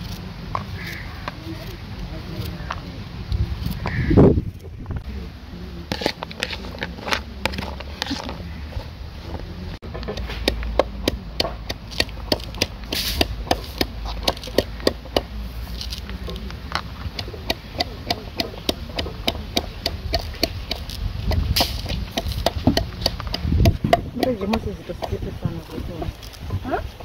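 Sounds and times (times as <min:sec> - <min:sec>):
knife chopping vegetables: 0:10.2 - 0:16.4, 0:17.0 - 0:25.3.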